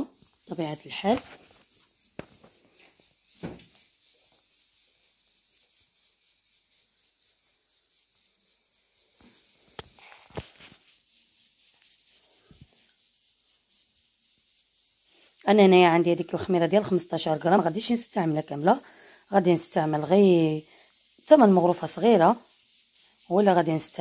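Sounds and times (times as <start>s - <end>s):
room hiss: 0.0s - 24.0s
soft knocks and rustles of food: 3.4s - 3.7s.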